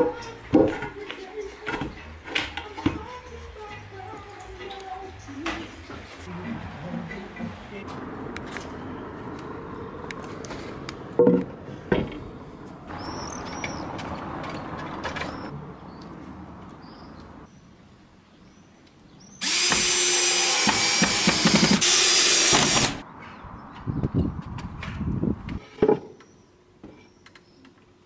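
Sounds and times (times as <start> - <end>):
cordless drill driving screw: 19.4 - 23.0.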